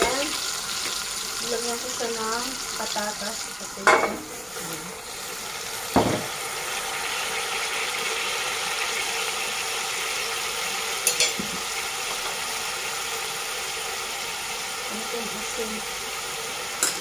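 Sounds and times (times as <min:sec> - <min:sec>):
hissing kitchen hum: 0:00.0 - 0:17.0
kitchenware clink: 0:03.8 - 0:04.3, 0:11.0 - 0:11.6, 0:16.8 - 0:17.0.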